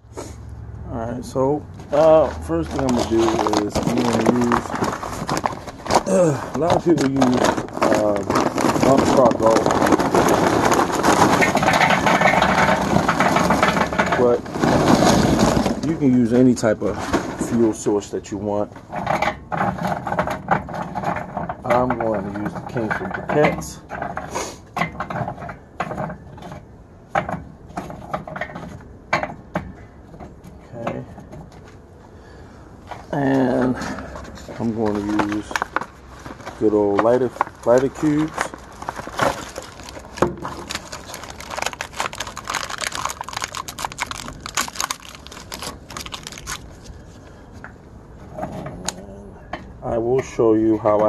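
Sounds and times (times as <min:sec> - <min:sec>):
charcoal briquettes clattering: 0:01.3 - 0:51.0
packaging crinkling: 0:01.9 - 0:16.2, 0:33.6 - 0:47.3.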